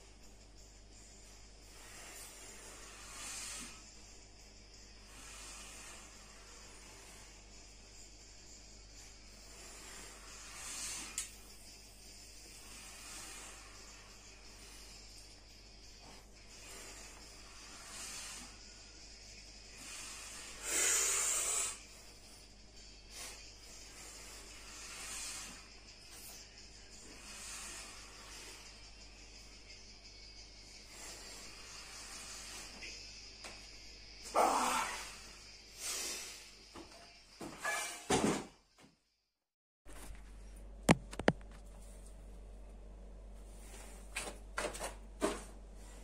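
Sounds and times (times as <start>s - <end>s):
man breathing hard: 19.7s - 22.4s.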